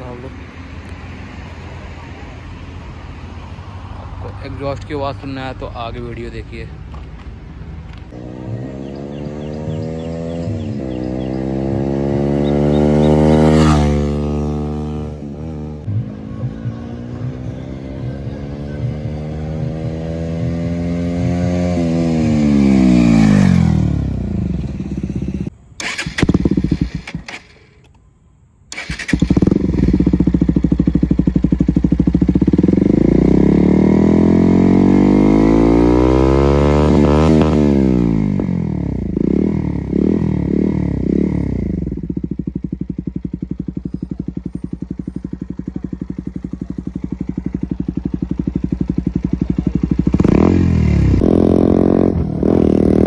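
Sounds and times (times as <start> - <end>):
motorcycle engine revving: 7.9 - 27.6, 28.7 - 53.0
motorcycle passing by: 7.9 - 27.6, 28.7 - 53.0
motorcycle engine idling: 21.2 - 27.3, 28.7 - 33.7, 40.6 - 51.2.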